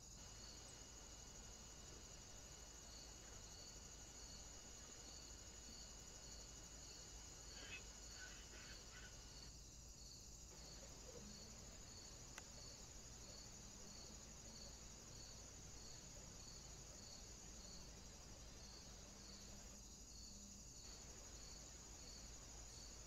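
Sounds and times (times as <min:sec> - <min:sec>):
background hiss: 0:00.0 - 0:23.0
crickets chirping: 0:00.0 - 0:23.0
faint click: 0:12.3 - 0:12.6.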